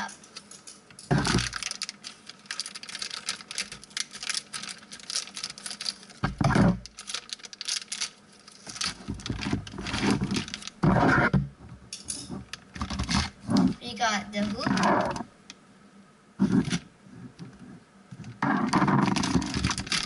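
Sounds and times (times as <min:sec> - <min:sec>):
plastic bag crinkling: 0:00.0 - 0:10.8, 0:12.4 - 0:15.3, 0:18.7 - 0:20.0.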